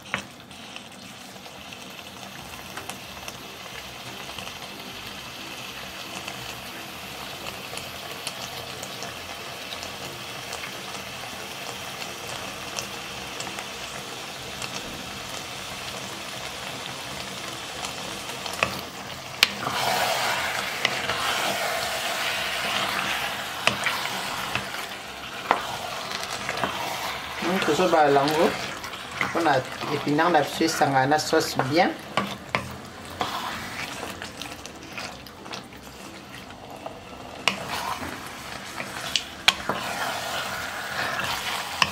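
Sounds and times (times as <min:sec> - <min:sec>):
stew sizzling and crackling in a pot: 0:00.0 - 0:41.9
wooden spatula stirring stew: 0:16.6 - 0:41.9.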